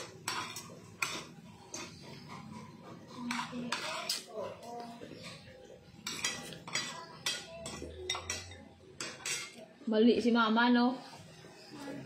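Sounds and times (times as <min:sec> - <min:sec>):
spoon clinking against dish: 0:00.0 - 0:09.6.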